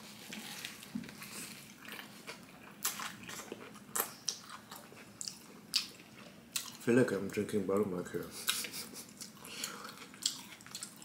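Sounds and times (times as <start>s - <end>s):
biting and chewing food: 8.5s - 11.0s.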